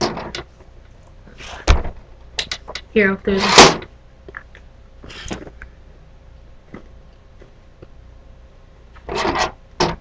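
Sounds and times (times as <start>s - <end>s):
toy figures rubbing and scraping: 3.3s - 3.8s.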